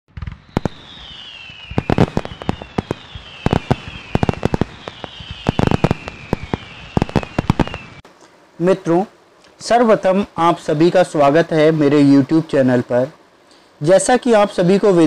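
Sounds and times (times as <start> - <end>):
firework cracks and bangs: 0.1 - 8.0
firework whistles: 0.1 - 8.0.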